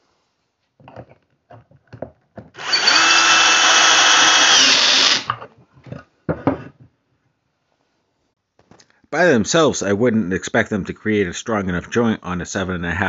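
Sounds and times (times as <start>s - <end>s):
cordless drill driving a screw: 2.6s - 5.4s.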